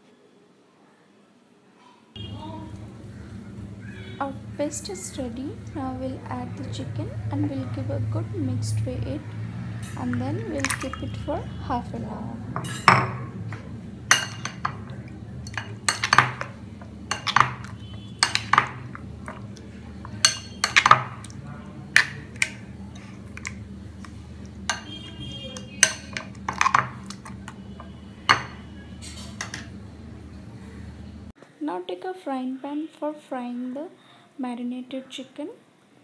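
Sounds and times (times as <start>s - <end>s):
spoon clinking against glass bowl: 12.6s - 19.4s, 20.0s - 21.4s, 24.7s - 29.7s.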